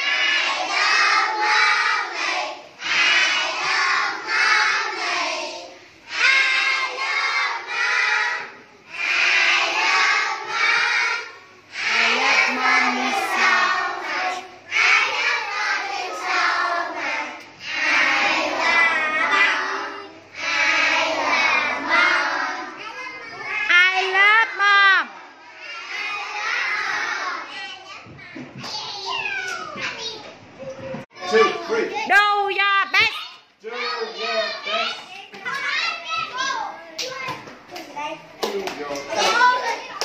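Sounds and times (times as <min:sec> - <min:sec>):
children singing in unison: 0:00.0 - 0:22.8.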